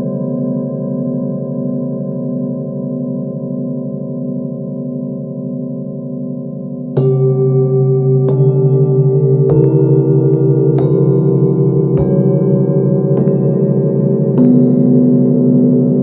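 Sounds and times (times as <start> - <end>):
singing bowls struck with mallet: 5.0 - 16.0.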